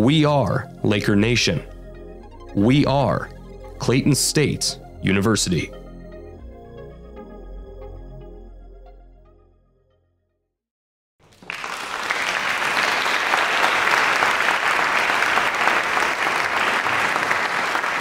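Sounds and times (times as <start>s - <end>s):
background music: 0.0s - 10.3s
audience applause: 11.2s - 18.0s.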